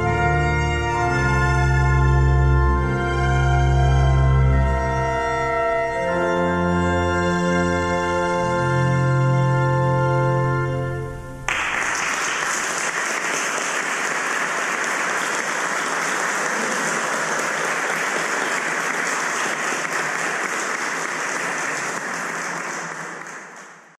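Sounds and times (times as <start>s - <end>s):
ensemble held chord: 0.0s - 11.5s
audience applause: 11.5s - 24.0s.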